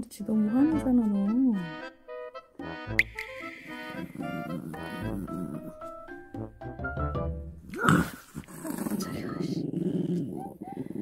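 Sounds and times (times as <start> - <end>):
playful accordion-like music: 0.0 - 7.6.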